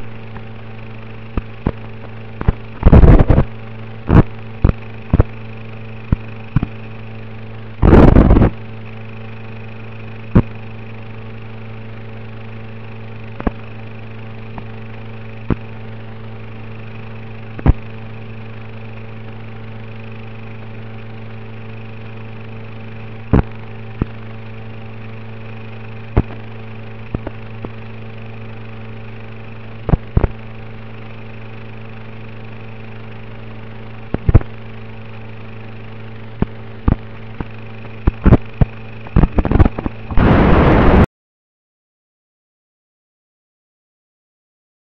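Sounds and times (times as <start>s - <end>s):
electrical buzzing hum: 0.0s - 41.1s
sharp clicks and pops: 1.4s - 3.5s, 4.1s - 5.3s, 27.1s - 27.8s, 29.9s - 30.4s, 34.1s - 34.5s, 36.4s - 41.0s
crackling static burst: 39.3s - 41.1s.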